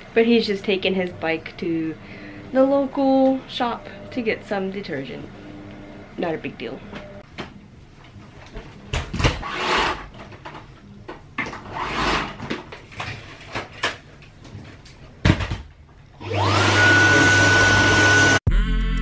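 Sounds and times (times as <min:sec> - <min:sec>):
vacuum cleaner knocks and clatter: 0:15.2 - 0:15.7
vacuum motor whine: 0:16.2 - 0:18.4.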